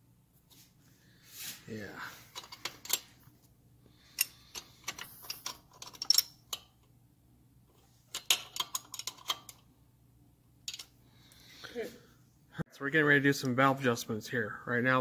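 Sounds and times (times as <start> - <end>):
tools clinking against metal: 4.1 - 6.7, 10.7 - 10.9.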